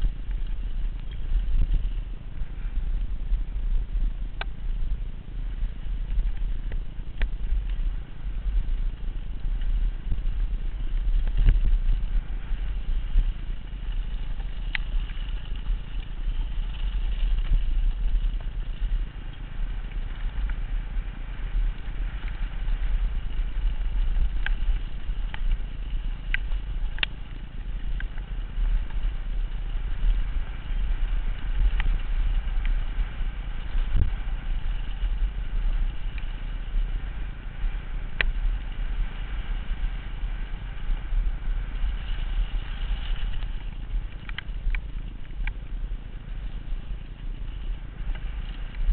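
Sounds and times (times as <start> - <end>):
low rumble of bike on gravel: 0.0 - 48.9
wind buffeting microphone: 0.0 - 48.9
bike clicks and rattles: 8.8 - 36.7, 41.8 - 45.7.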